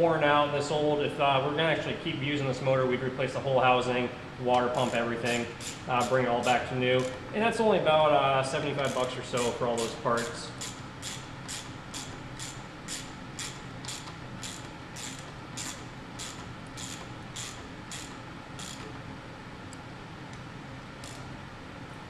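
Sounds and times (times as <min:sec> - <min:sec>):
ratchet wrench clicking: 0:04.8 - 0:07.2, 0:08.8 - 0:18.9, 0:21.0 - 0:21.2.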